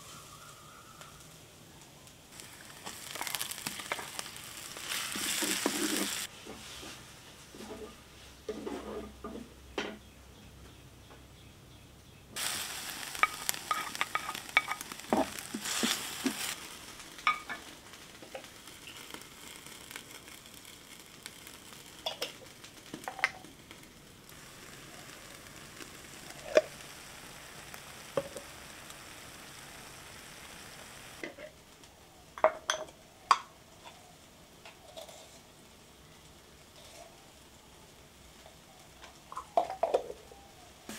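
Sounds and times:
food sizzling in hot oil: 0:02.3 - 0:06.3, 0:12.4 - 0:33.5.

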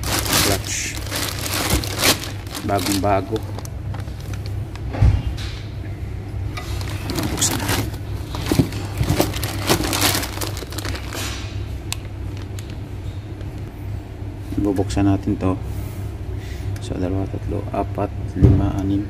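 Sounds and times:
plastic wrapping crinkling: 0:00.0 - 0:04.9, 0:06.6 - 0:12.8
steady low hum: 0:00.0 - 0:19.0.

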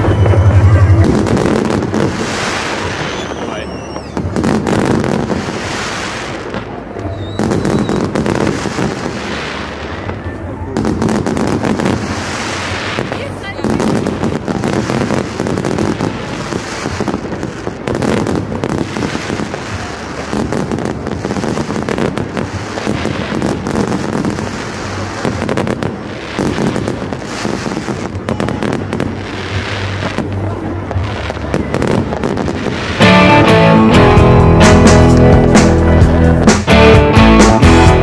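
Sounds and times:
fireworks bangs and crackling: 0:00.0 - 0:38.0
guitar music: 0:32.9 - 0:38.0.

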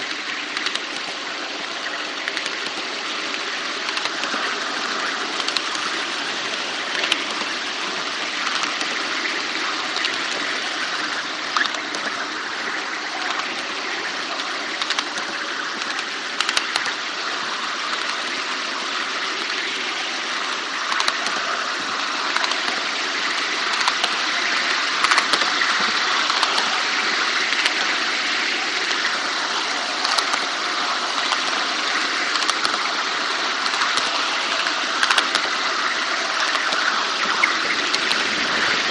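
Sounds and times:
model train rushing run noise: 0:00.0 - 0:38.9
sharp clicks: 0:00.5 - 0:01.0, 0:03.8 - 0:04.4, 0:14.8 - 0:16.9, 0:33.6 - 0:35.5.

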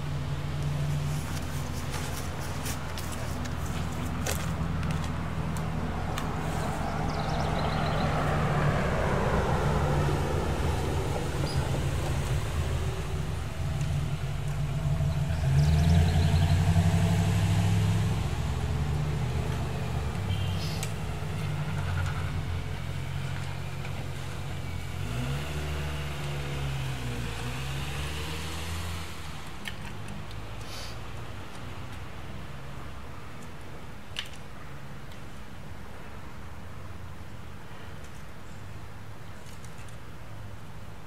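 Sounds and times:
vehicle engine running: 0:06.5 - 0:26.6.

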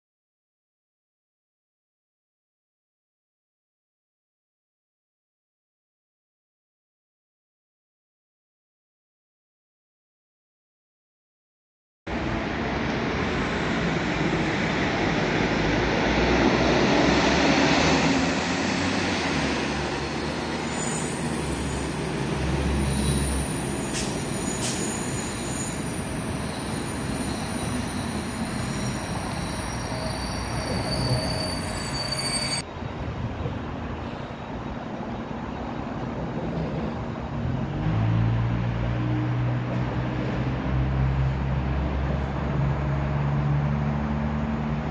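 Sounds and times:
train wheels rumbling on rails: 0:12.2 - 0:44.9
metallic brake squealing: 0:17.9 - 0:32.6.

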